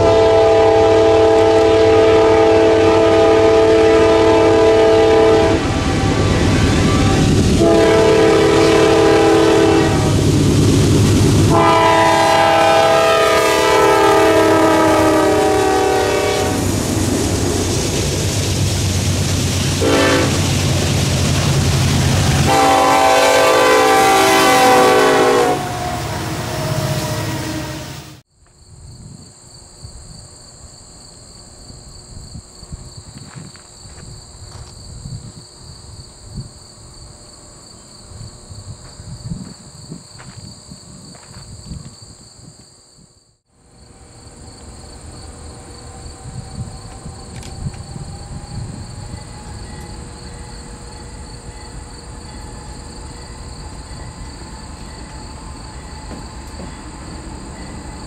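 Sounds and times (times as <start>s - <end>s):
distant diesel locomotives rumbling: 0.0s - 28.2s, 43.5s - 58.0s
insects chirring: 28.3s - 58.0s.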